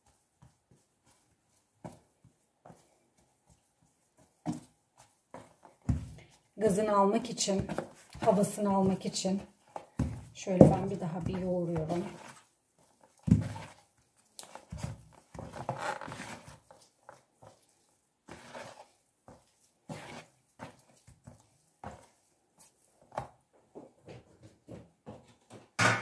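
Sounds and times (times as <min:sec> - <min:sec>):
dough squishing and patting: 0:00.0 - 0:25.6.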